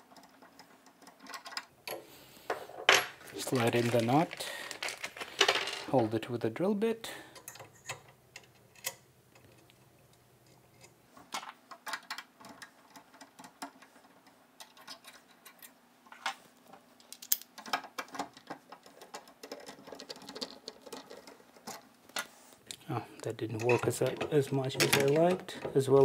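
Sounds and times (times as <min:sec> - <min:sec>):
small clicks taps and scrapes: 0:07.4 - 0:22.8.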